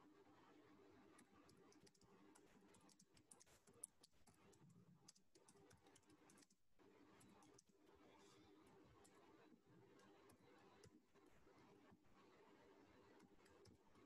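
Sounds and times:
typing on computer keyboard: 0:01.2 - 0:06.6.

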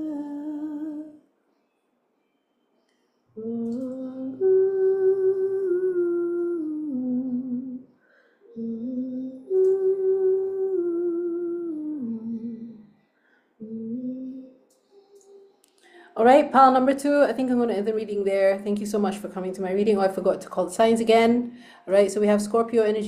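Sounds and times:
woman humming: 0:00.0 - 0:01.2, 0:03.4 - 0:07.8, 0:08.5 - 0:12.9, 0:13.6 - 0:15.4.

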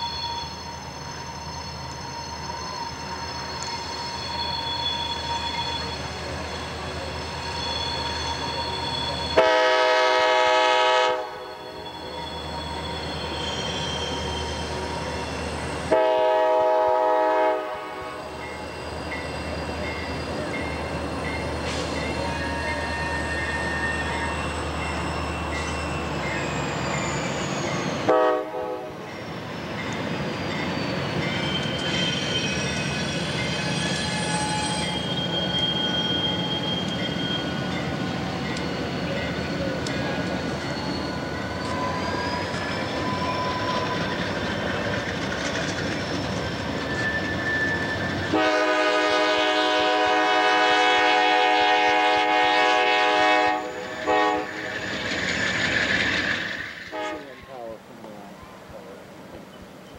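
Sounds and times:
freight train rumbling past: 0:00.0 - 0:59.9
locomotive air horn blasts: 0:09.3 - 0:11.7, 0:15.8 - 0:18.4, 0:28.0 - 0:29.0, 0:48.3 - 0:54.7, 0:56.9 - 0:57.4.

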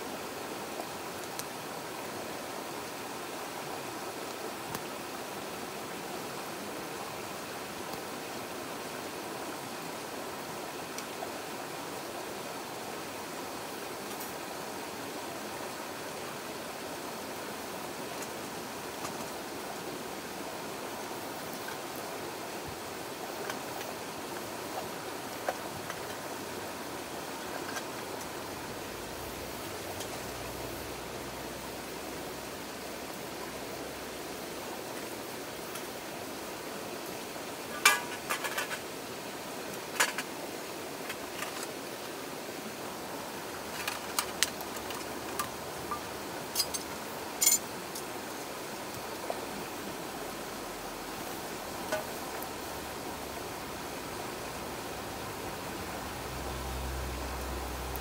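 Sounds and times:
stream rushing over rocks: 0:00.0 - 0:58.0
wood fire crackling: 0:00.7 - 0:02.0, 0:37.0 - 0:42.1, 0:43.1 - 0:49.5.

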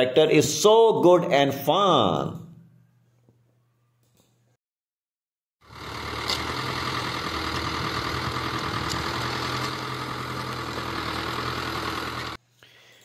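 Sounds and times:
tractor diesel engine under load: 0:05.6 - 0:12.4.

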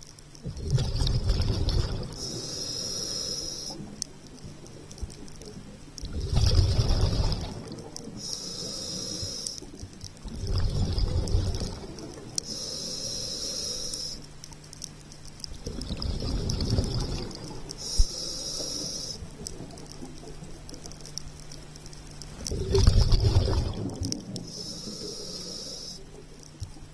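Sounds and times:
bubbles bursting on exhale: 0:00.4 - 0:02.3, 0:06.0 - 0:08.3, 0:10.2 - 0:12.3, 0:15.5 - 0:18.0, 0:22.5 - 0:24.6
regulator hiss on inhale: 0:00.7 - 0:05.5, 0:06.6 - 0:15.4, 0:16.2 - 0:22.5, 0:24.1 - 0:26.9.

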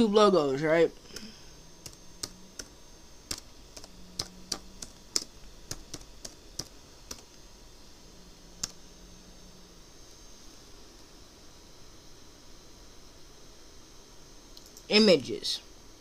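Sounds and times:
typing on laptop keyboard: 0:03.3 - 0:07.2.

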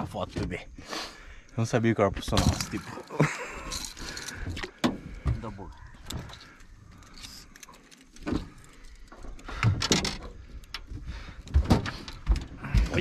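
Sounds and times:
knocks clicks and rattles: 0:03.7 - 0:13.0.

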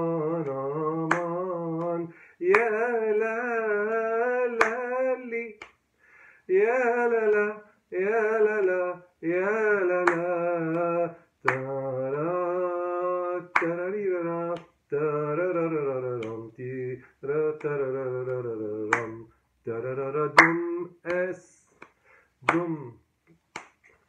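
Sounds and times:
man singing long held notes: 0:00.0 - 0:05.6, 0:06.5 - 0:21.7, 0:22.4 - 0:23.0
hand clapping rhythm: 0:00.0 - 0:05.9, 0:06.7 - 0:24.0.

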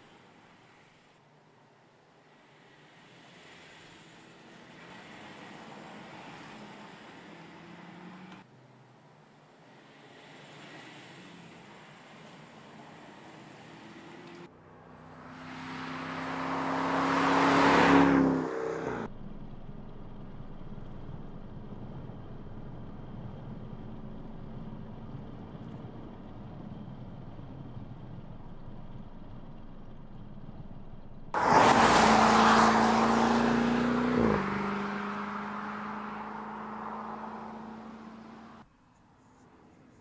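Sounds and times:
muted engine and road noise: 0:00.0 - 0:40.0
car driving past: 0:13.6 - 0:19.1, 0:31.3 - 0:38.6.

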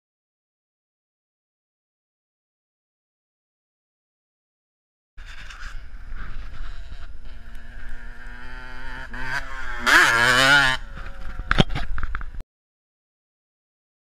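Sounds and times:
motorcycle engine revving past: 0:05.2 - 0:12.0.

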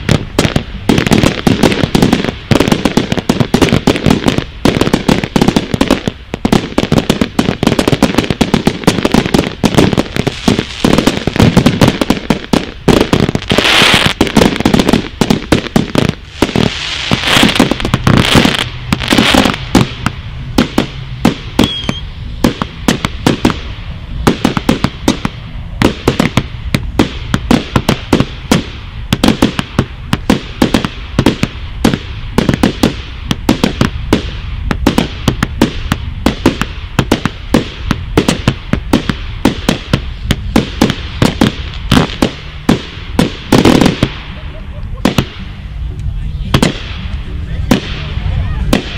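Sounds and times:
fireworks barrage of sharp bangs: 0:00.0 - 0:48.9.

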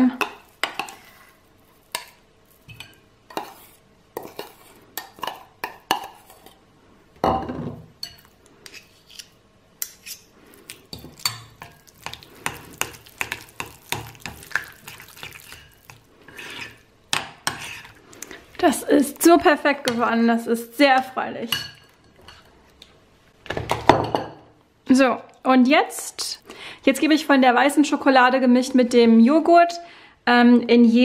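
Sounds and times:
spoon stirring thick mixture: 0:00.1 - 0:06.6, 0:08.0 - 0:23.0
spoons clinking on bowls: 0:01.8 - 0:03.6, 0:08.0 - 0:08.4, 0:10.9 - 0:16.8, 0:21.5 - 0:22.5.

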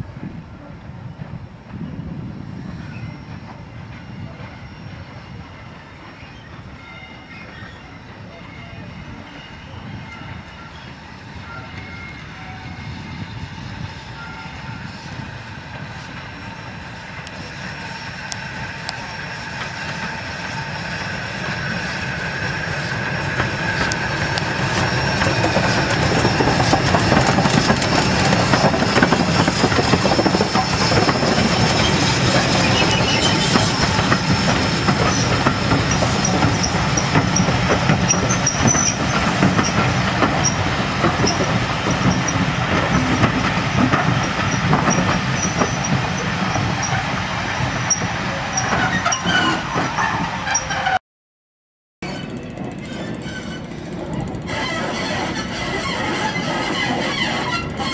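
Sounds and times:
steam hissing: 0:12.8 - 0:48.8
train wheels clattering on rails: 0:17.2 - 0:51.0
thin wheel squeal: 0:24.6 - 0:34.5, 0:35.1 - 0:40.6, 0:47.8 - 0:51.0, 0:52.0 - 0:53.9, 0:54.5 - 0:57.9.

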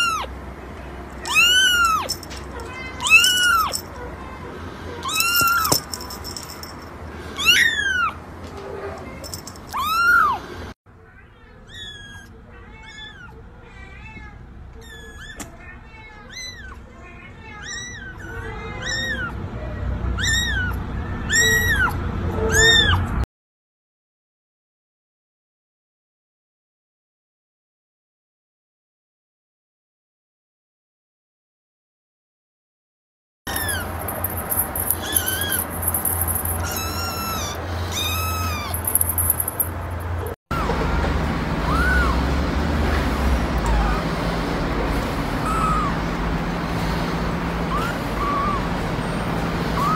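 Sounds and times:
kittens mewing: 0:01.2 - 0:06.6, 0:07.3 - 0:08.2, 0:11.4 - 0:19.4, 0:20.2 - 0:23.0, 0:33.5 - 0:40.7, 0:43.5 - 0:44.1, 0:47.6 - 0:49.9
kitten mewing: 0:33.5 - 0:39.0.

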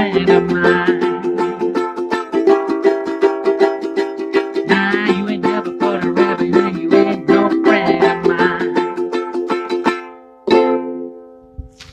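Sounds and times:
man singing wordlessly: 0:00.0 - 0:02.0, 0:04.3 - 0:09.1
ukulele strumming: 0:00.0 - 0:11.9.

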